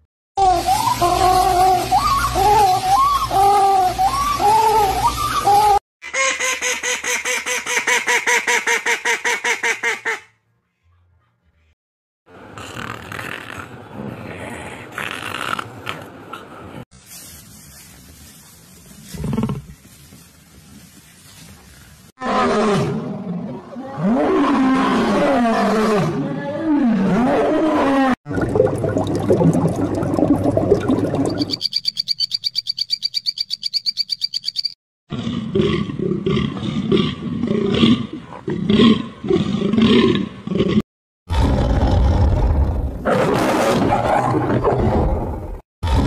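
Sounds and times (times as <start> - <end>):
repeated animal calls: 31.4 - 34.8.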